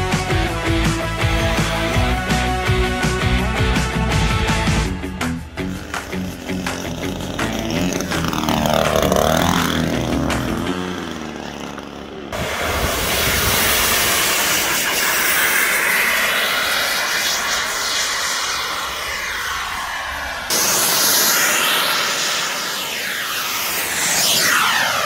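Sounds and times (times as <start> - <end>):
model airplane motor passing: 5.0 - 25.0
model airplane motor running: 5.3 - 25.0.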